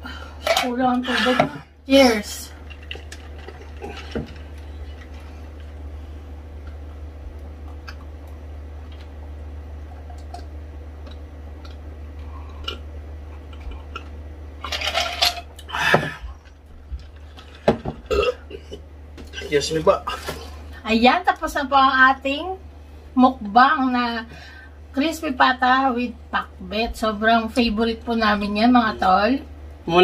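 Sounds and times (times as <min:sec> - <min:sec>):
steady low hum: 0:00.0 - 0:30.0
person sipping water: 0:10.0 - 0:14.2.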